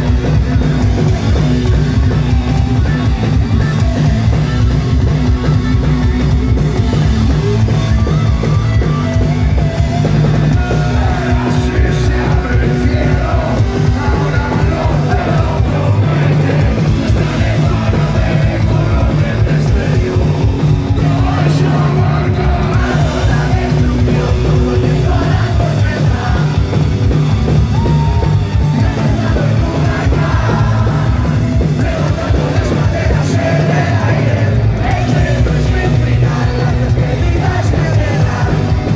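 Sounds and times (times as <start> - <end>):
punk rock band playing: 0.0 - 38.9
shouted lead vocal: 10.4 - 38.9.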